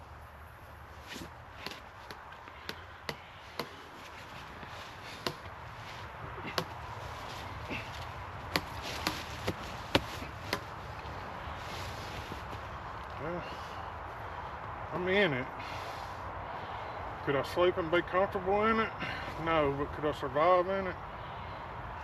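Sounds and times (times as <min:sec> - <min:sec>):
hammock clicking and creaking: 0:00.0 - 0:13.3
soft rustle of fabric: 0:06.9 - 0:13.0.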